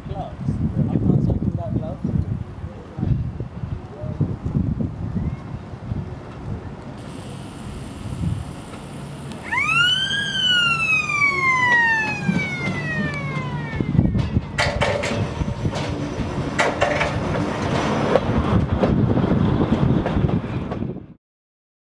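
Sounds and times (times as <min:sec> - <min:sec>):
electric railway car siren warning: 0:07.0 - 0:14.6
wheels knocking over rail joints: 0:11.2 - 0:19.0
railway car clattering past: 0:11.5 - 0:20.9.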